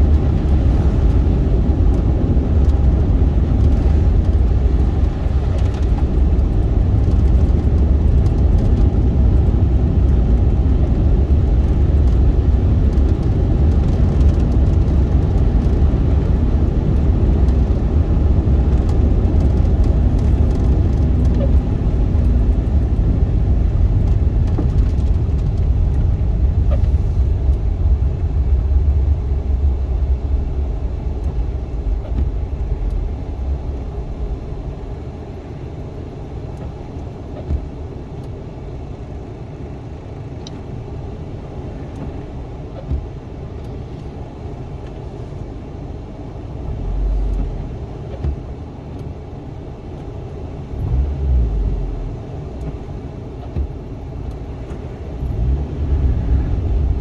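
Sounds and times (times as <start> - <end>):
car engine and tyres rumbling: 0.0 - 57.0.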